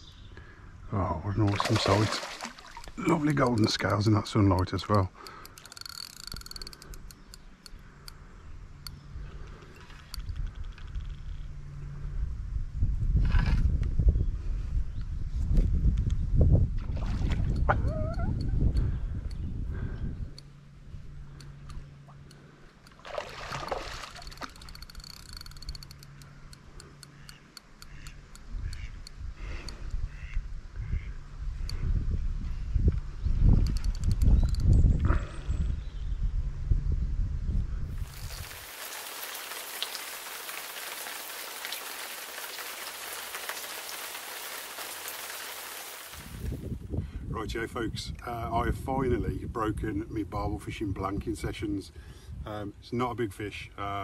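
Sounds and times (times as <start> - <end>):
steady low hum: 0.4 - 10.6, 14.1 - 38.2
fish splashing at water surface: 1.5 - 3.0, 22.9 - 25.0, 38.0 - 46.6
small clicks: 4.5 - 8.2, 24.2 - 29.9
steady crackling hiss: 38.0 - 46.8.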